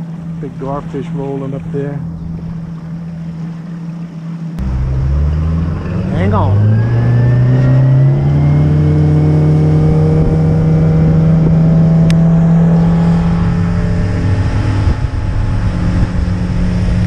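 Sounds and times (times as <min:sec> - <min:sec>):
outboard motor running: 0:00.0 - 0:17.0.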